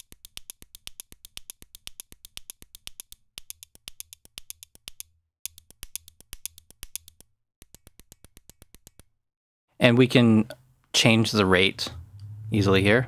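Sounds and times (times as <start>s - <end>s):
rapid pen clicks: 0.0s - 9.1s.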